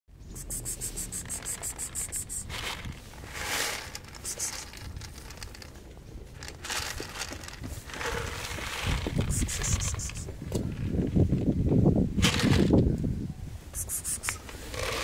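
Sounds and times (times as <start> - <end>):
rustling: 0.4 - 11.2
kibble poured onto concrete: 0.6 - 5.8.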